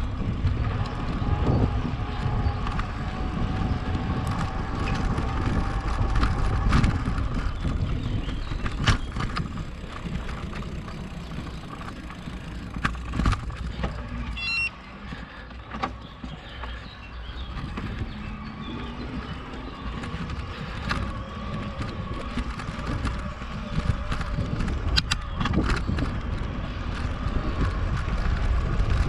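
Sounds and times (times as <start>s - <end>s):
bike knocks and rattles: 0.0s - 14.4s, 15.0s - 29.0s
tyre and wind rumble: 0.0s - 29.0s
short high beep: 14.4s - 14.8s.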